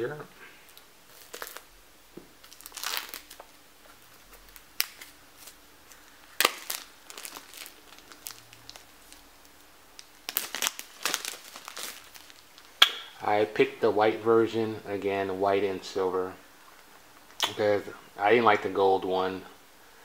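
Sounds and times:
plastic wrap ripping: 0.7 - 1.7, 2.4 - 12.9
plastic wrapping crinkling: 0.7 - 13.2.

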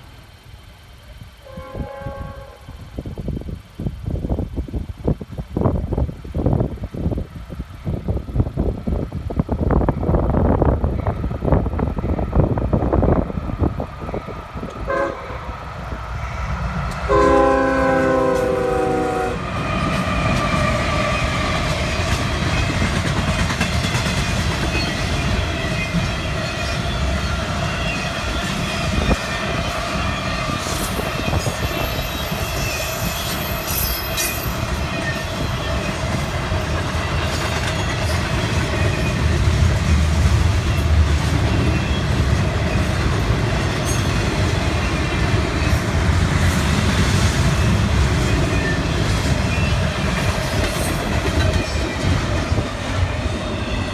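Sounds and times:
freight train rumble and clatter: 0.0 - 53.9
locomotive horn: 1.4 - 2.8, 14.9 - 15.5, 17.1 - 19.5.

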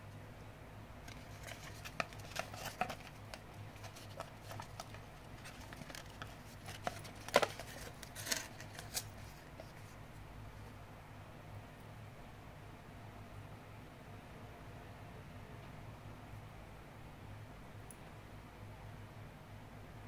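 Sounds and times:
hands handling packaging: 1.0 - 10.0.

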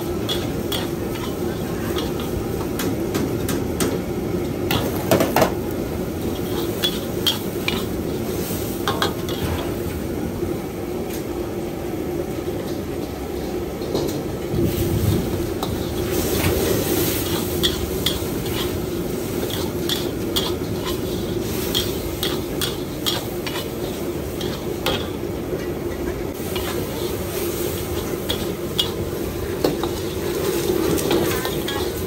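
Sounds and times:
noodles sizzling in a wok: 0.0 - 32.0
metal ladle scraping a wok: 26.4 - 32.0.

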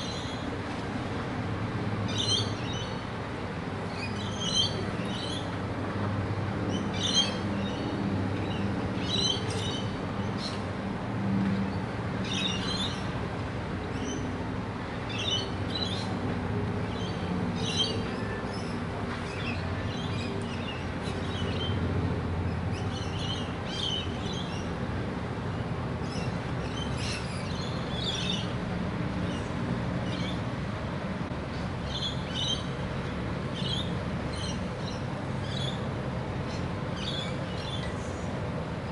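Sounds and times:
lorikeets chirping: 2.1 - 3.0, 3.9 - 5.5, 6.7 - 7.8, 8.4 - 10.6, 16.9 - 21.8, 26.0 - 28.5, 31.9 - 32.7.

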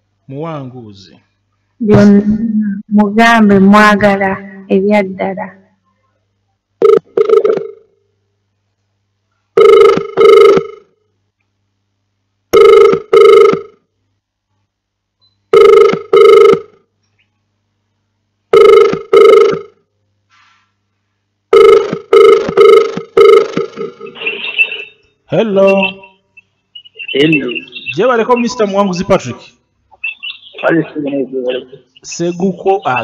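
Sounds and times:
telephone ringback tone: 6.8 - 7.9, 9.6 - 10.9, 12.5 - 13.8, 15.5 - 16.8, 18.5 - 19.8, 21.5 - 25.0.

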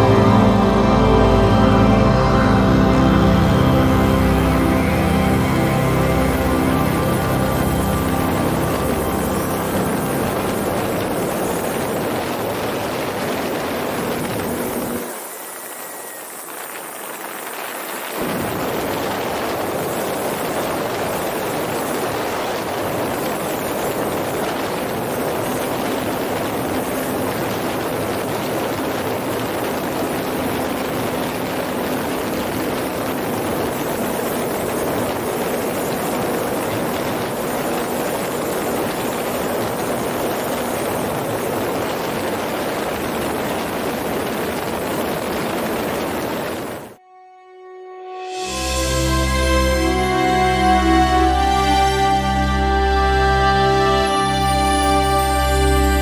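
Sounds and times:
model plane motor and propeller hum: 3.6 - 47.0.

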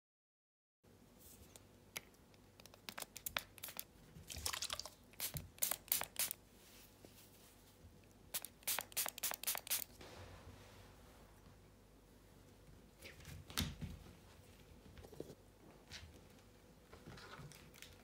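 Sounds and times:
pump spray bottle spritzing: 5.2 - 6.4, 8.3 - 9.9.

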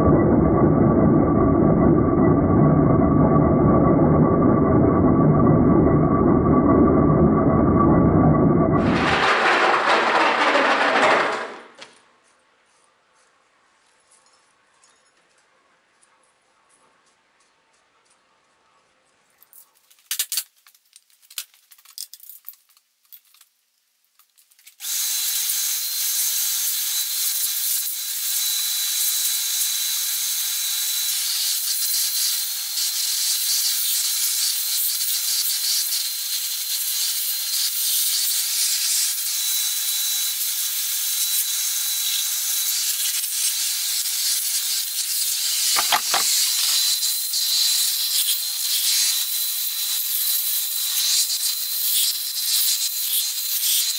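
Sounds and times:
brief clatter: 8.8 - 12.0, 45.8 - 46.8
light metal clinks and knocks: 13.8 - 15.6.

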